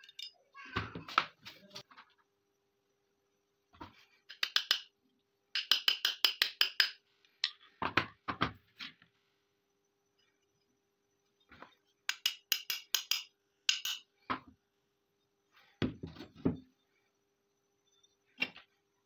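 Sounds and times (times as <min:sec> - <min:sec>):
hammer tapping metal pin: 0:05.6 - 0:07.6, 0:12.1 - 0:14.1.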